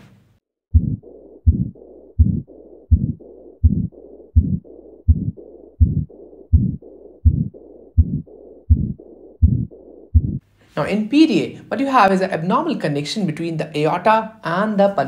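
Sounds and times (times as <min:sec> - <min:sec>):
continuous heart murmur: 0:00.7 - 0:10.5
heartbeats: 0:00.7 - 0:10.5.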